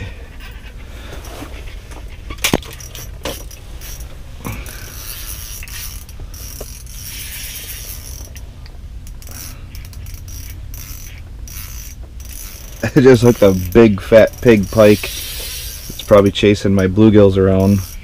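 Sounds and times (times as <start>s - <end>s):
low hum: 0.0s - 18.0s
fishing reel clicking: 4.7s - 8.4s, 9.0s - 16.3s, 17.6s - 18.0s.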